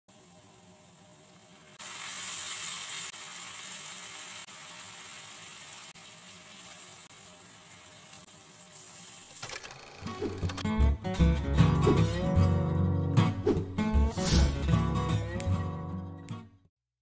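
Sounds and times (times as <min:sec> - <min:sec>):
chicken sizzling in a wok: 0:00.1 - 0:09.4.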